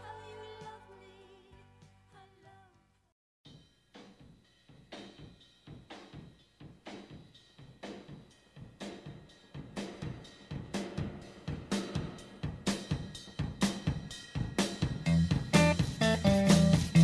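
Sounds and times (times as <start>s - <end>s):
steady drumbeat: 3.5s - 17.0s.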